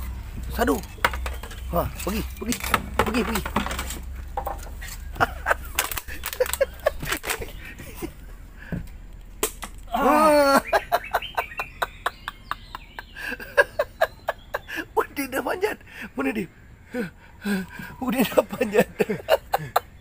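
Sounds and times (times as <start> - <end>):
sharp clicks and knocks: 0.4 - 8.1, 8.7 - 9.9.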